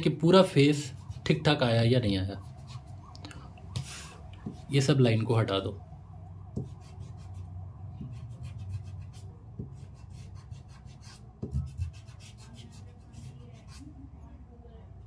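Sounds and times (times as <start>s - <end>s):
soft thumps: 6.5s - 6.8s
eraser rubbing on paper: 6.6s - 14.0s.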